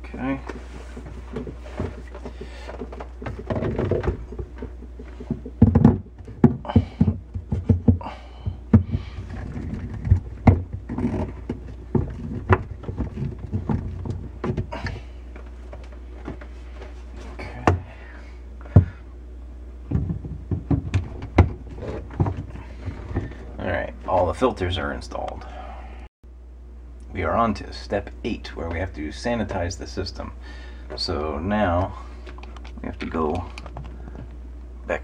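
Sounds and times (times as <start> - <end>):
steady low hum: 0.0 - 35.0
plastic knocks clicks and scrapes: 0.5 - 8.1, 8.7 - 16.5.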